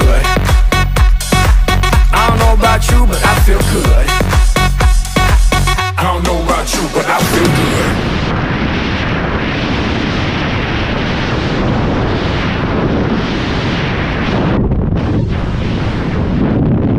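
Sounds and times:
wind blasting microphone: 7.1 - 16.9.

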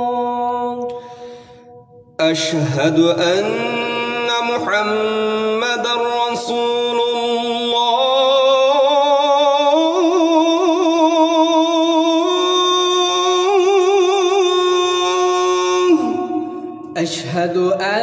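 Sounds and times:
man chanting call to prayer: 0.0 - 0.9, 2.2 - 18.0.

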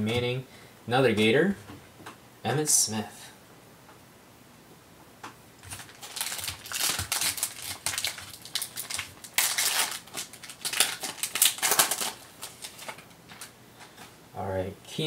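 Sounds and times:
foil pack crinkling and tearing: 5.6 - 14.0.

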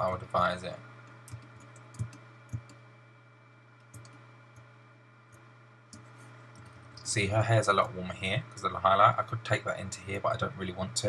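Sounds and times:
faint computer clicks: 1.0 - 2.8, 3.8 - 4.7.

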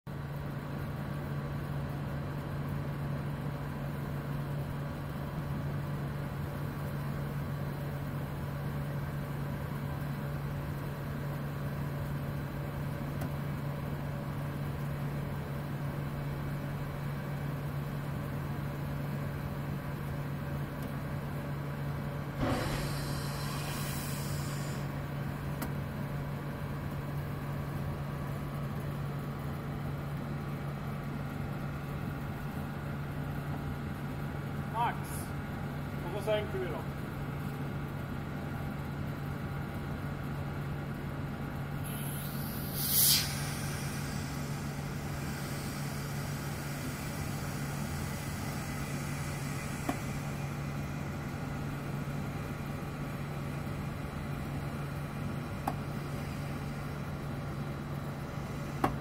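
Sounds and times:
low machine hum: 0.1 - 59.0
pneumatic hissing: 22.4 - 25.0, 41.8 - 51.9.

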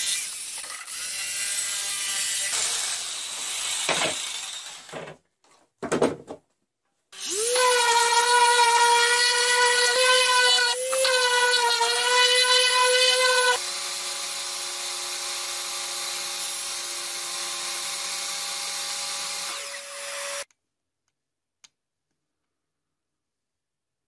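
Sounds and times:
table saw cutting plywood: 7.2 - 20.5.

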